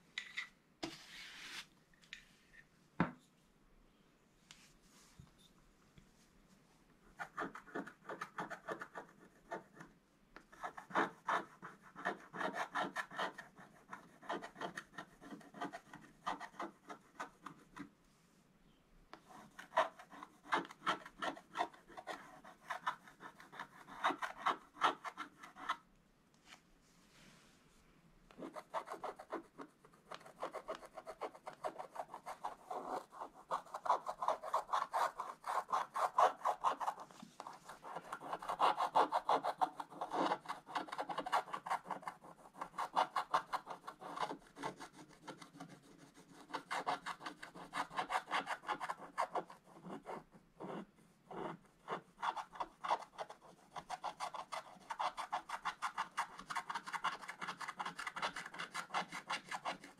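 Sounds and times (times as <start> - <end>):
stylus scraping scratch-art paper: 7.2 - 9.8, 10.6 - 17.8, 19.2 - 25.8, 28.4 - 59.9.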